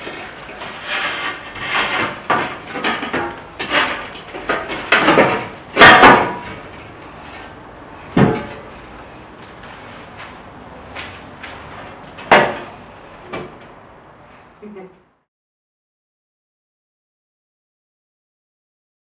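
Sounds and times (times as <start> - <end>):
sheet metal scraping and rubbing: 0.0 - 10.4.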